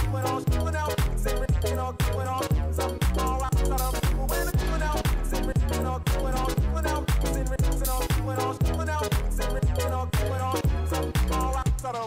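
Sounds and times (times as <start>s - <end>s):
music with heavy bass beat: 0.0s - 12.0s.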